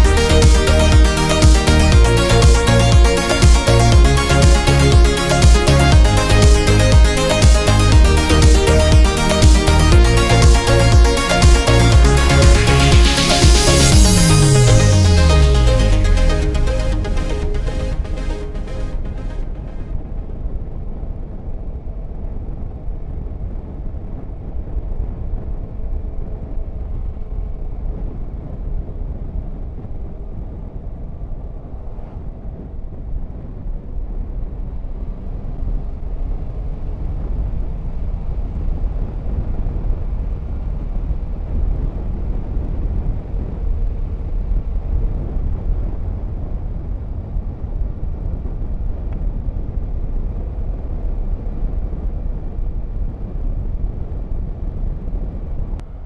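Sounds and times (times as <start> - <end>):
motorcycle engine drone: 0.0 - 56.0
wind rumble on microphone: 19.4 - 56.0.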